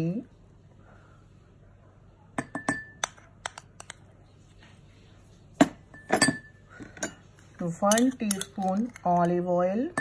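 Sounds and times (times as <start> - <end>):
teaspoon clinking on ceramic: 6.0 - 10.0.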